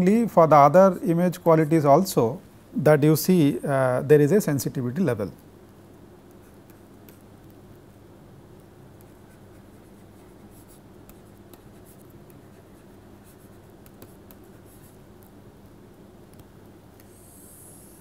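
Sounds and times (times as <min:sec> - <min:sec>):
low steady hum: 0:00.0 - 0:18.0
stylus scratching on tablet: 0:06.2 - 0:07.6, 0:08.5 - 0:15.4, 0:16.3 - 0:18.0.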